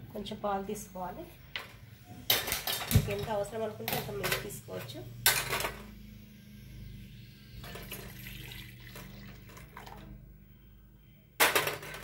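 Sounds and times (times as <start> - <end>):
milk pouring into a steel pan: 7.7 - 10.0.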